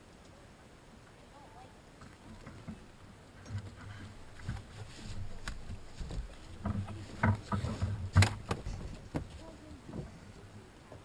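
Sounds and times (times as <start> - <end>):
thumps and knocks in boat: 3.5 - 10.2.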